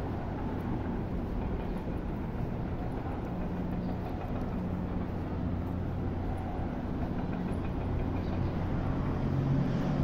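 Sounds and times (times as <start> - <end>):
street traffic hum: 0.0 - 10.0.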